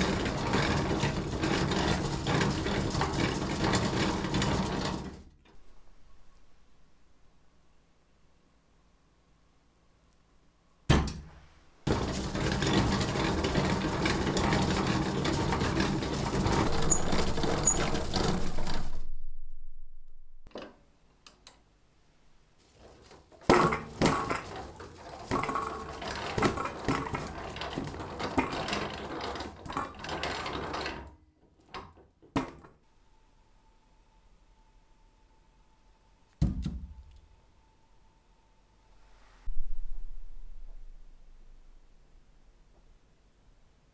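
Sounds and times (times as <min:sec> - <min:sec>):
potatoes tumbling in grater drum: 0:00.0 - 0:05.6, 0:11.8 - 0:19.0, 0:22.6 - 0:31.1.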